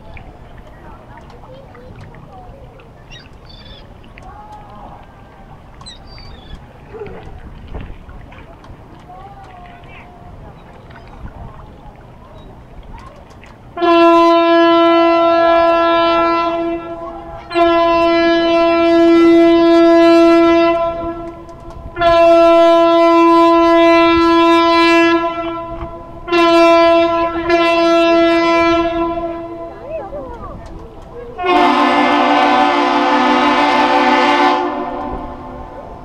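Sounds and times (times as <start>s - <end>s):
air horn blasts: 13.8s - 29.9s, 31.4s - 35.8s.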